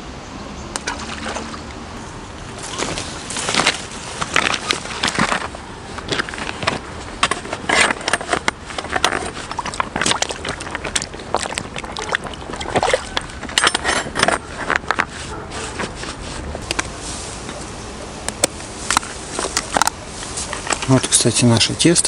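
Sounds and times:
splashing in shallow water: 0:00.8 - 0:01.8, 0:02.5 - 0:05.4, 0:08.8 - 0:13.8
metal seat frame clattering: 0:02.6 - 0:09.5, 0:13.1 - 0:16.7
boots crunching on stones: 0:02.6 - 0:17.6.

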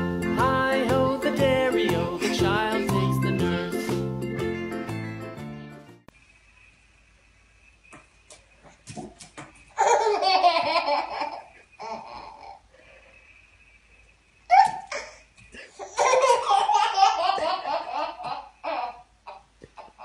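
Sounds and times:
baby laughing: 0:09.8 - 0:12.7, 0:14.5 - 0:20.0.

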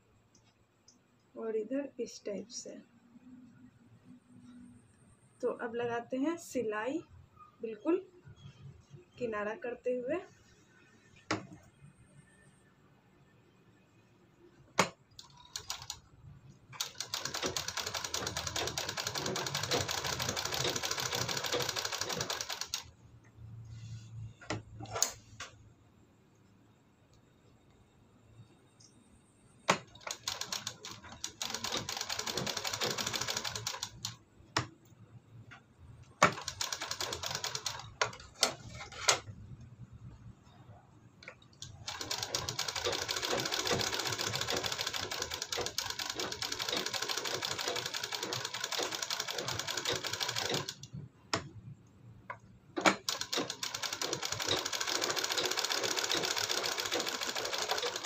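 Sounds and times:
electric sewing machine stitching: 0:16.8 - 0:22.8, 0:41.9 - 0:50.7, 0:52.9 - 0:58.0.

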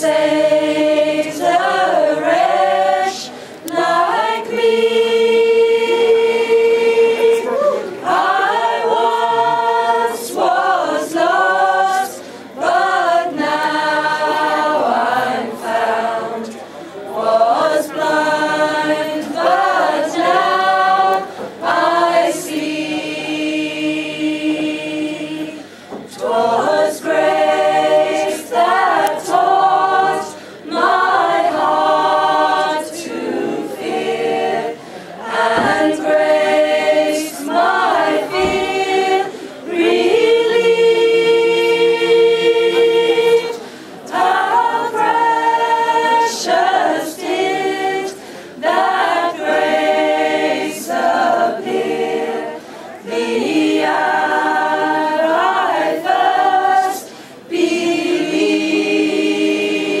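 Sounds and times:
group of voices singing: 0:00.0 - 1:00.0.

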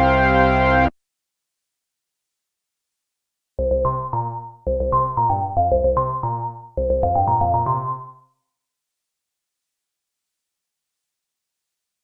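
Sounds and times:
held synthesizer bass note: 0:03.6 - 0:08.1
synthesizer melody notes: 0:03.6 - 0:08.2.

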